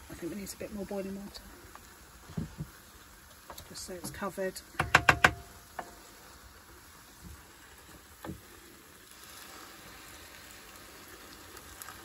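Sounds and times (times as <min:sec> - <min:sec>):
wooden spoon knocking on pan: 0:04.0 - 0:06.0
boiling water pouring into pan: 0:05.3 - 0:12.0.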